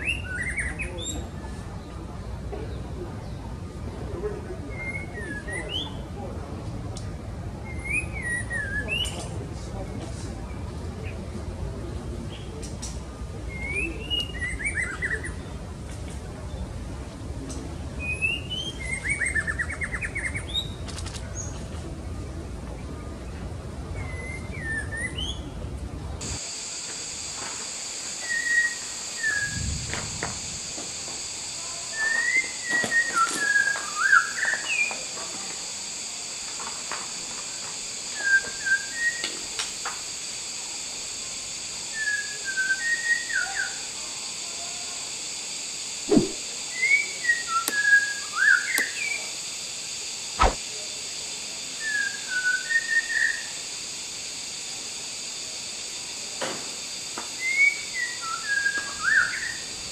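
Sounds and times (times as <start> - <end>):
high-pitched hiss: 26.2 - 59.9.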